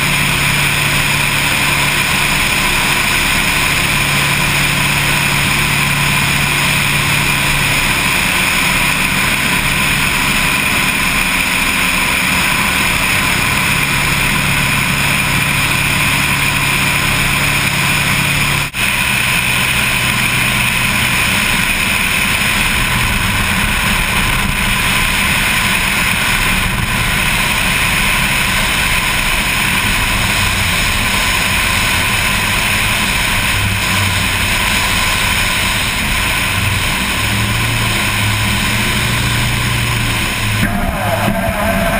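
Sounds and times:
aircraft engines and propellers: 0:00.0 - 0:41.9.

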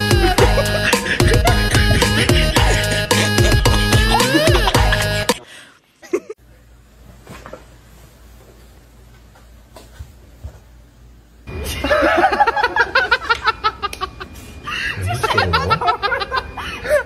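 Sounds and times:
people laughing loudly: 0:00.2 - 0:05.3, 0:11.6 - 0:17.0.

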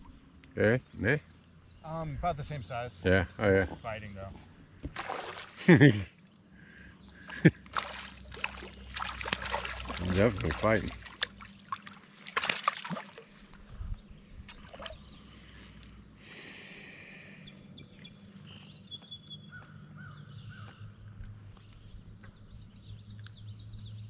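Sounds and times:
birds chirping: 0:00.0 - 0:24.0
gentle water sounds: 0:04.6 - 0:16.2
fish splashing in water: 0:04.9 - 0:05.6, 0:07.3 - 0:13.5, 0:14.5 - 0:15.0.

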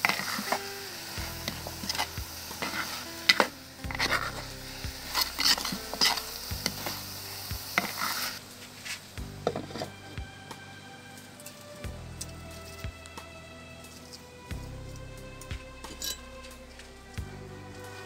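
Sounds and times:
curry sizzling: 0:00.0 - 0:18.0
metal spoon scraping pot: 0:01.4 - 0:04.5, 0:05.1 - 0:07.0.

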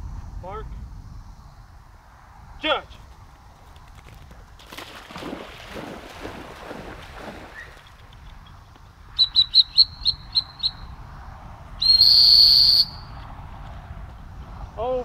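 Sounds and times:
whistle long blast: 0:09.2 - 0:10.9, 0:11.8 - 0:13.2
whistle short toots: 0:09.2 - 0:10.9, 0:11.8 - 0:13.2.

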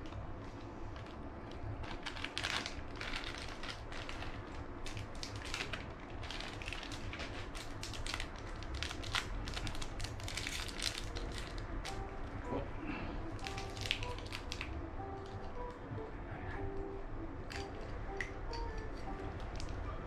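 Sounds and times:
plastic bag crinkling: 0:00.9 - 0:12.0, 0:13.4 - 0:14.8.

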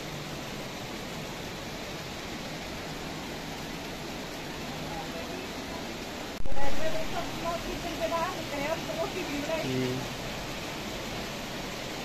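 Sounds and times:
heavy rain: 0:00.0 - 0:12.0
running water: 0:00.0 - 0:12.0.

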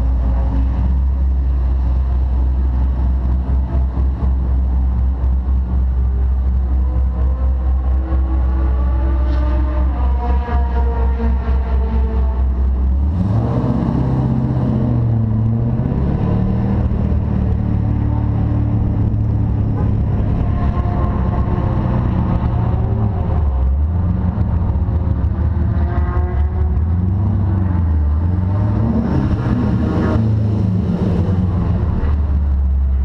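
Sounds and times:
car engine revving: 0:00.0 - 0:33.0.

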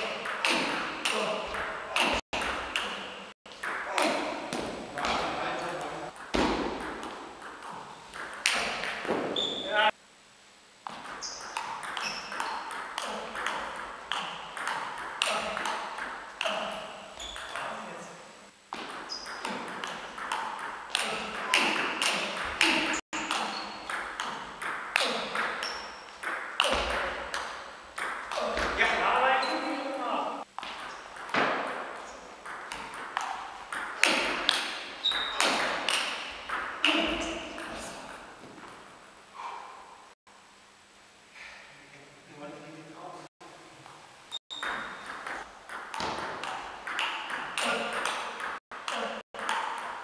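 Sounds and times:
table tennis ball hits: 0:00.0 - 0:05.5, 0:06.1 - 0:09.6, 0:10.8 - 0:17.7, 0:18.7 - 0:29.1, 0:30.5 - 0:38.8, 0:44.5 - 0:50.0
short high squeak: 0:35.0 - 0:35.5.

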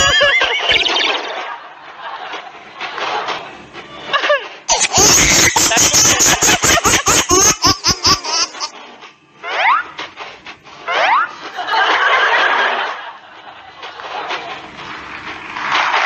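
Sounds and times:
audience laughing: 0:00.0 - 0:08.7, 0:10.9 - 0:16.0.

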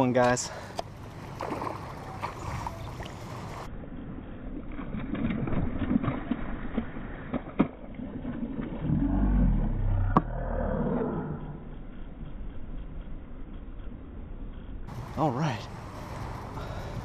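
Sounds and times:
fish splashing in water: 0:01.2 - 0:03.7, 0:04.5 - 0:08.9.

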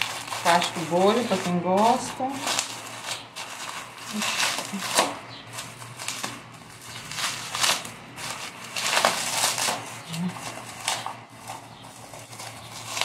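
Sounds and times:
bubble wrap crinkling: 0:00.0 - 0:13.0.

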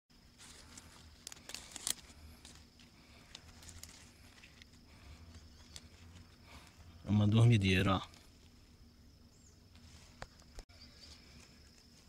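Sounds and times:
dry grass rustling and crackling: 0:00.2 - 0:06.9, 0:09.7 - 0:12.0.

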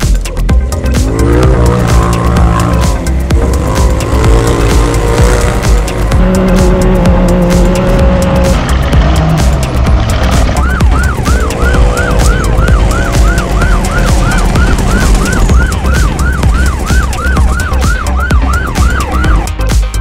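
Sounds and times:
race truck engine at high revs: 0:00.0 - 0:19.5
electronic siren yelping: 0:10.3 - 0:19.6.

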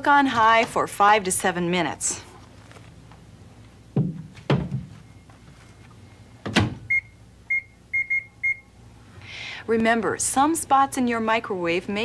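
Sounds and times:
knocks: 0:04.0 - 0:05.0
microwave keypad beeps: 0:06.9 - 0:08.7.

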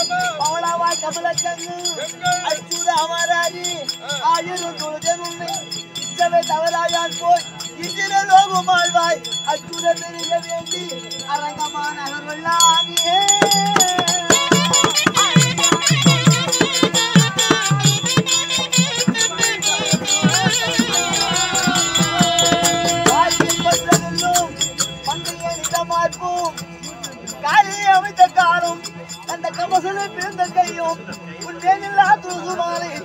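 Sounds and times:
hand drum with jingling rattle: 0:00.0 - 0:33.0
wavering high melody: 0:04.7 - 0:33.0
steady drone: 0:15.1 - 0:28.9.

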